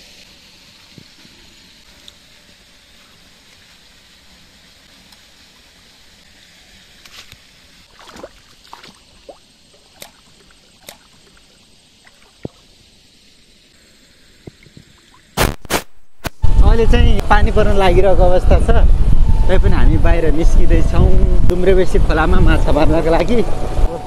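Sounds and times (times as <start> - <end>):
stream water running: 0.0 - 15.7
hands splashing in water: 7.9 - 11.2.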